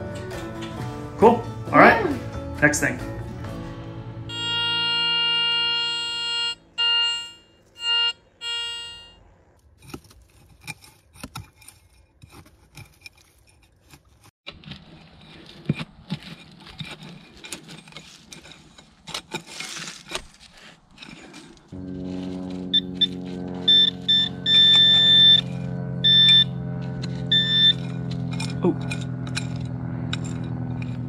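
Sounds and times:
buzzy electronic beeps: 4.3s - 9.5s, 21.8s - 28.4s
knife scraping into stony soil: 9.6s - 24.1s, 26.8s - 31.0s.

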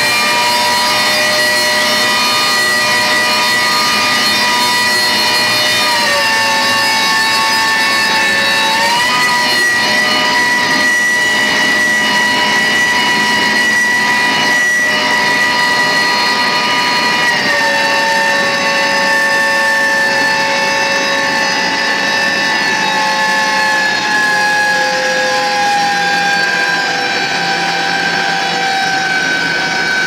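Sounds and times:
fishing winch whining: 0.0s - 30.0s.

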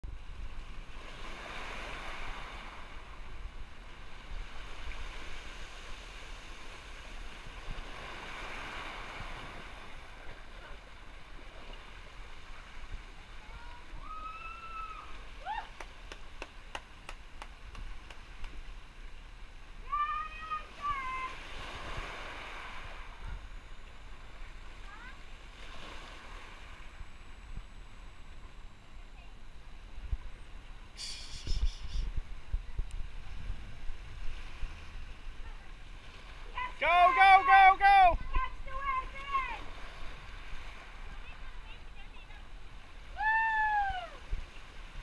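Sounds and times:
surf washing into a rocky cove: 0.1s - 45.0s
person calling out: 36.8s - 38.2s.

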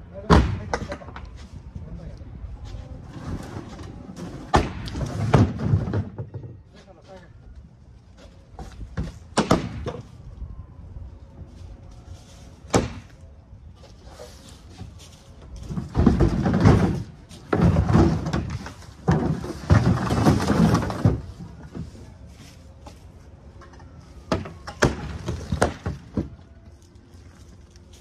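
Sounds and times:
plastic panels scraping and clattering: 15.6s - 22.0s.

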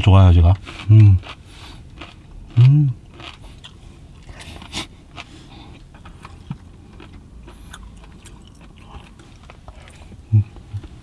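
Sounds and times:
person chewing food: 0.5s - 11.0s.

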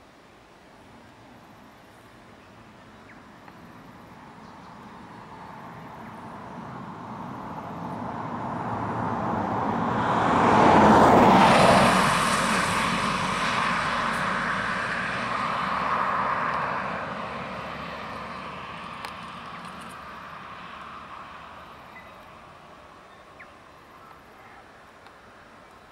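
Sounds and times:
vehicle passing by: 4.3s - 24.0s.

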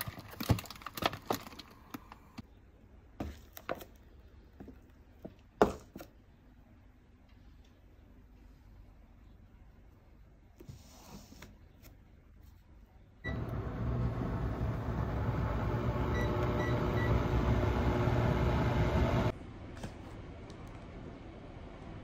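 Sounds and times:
induction cooktop humming: 13.2s - 19.3s.

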